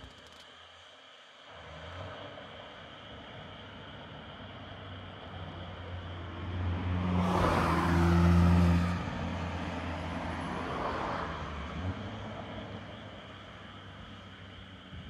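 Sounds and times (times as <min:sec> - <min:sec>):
car passing by: 0:05.3 - 0:13.2.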